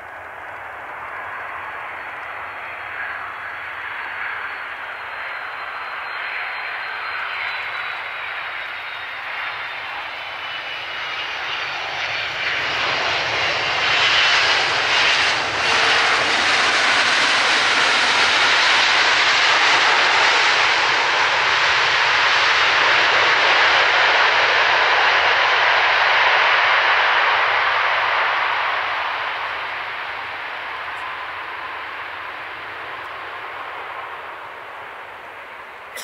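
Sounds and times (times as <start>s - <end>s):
faint high whine: 0.0s - 11.4s
airliner jet engines roaring: 0.0s - 36.0s.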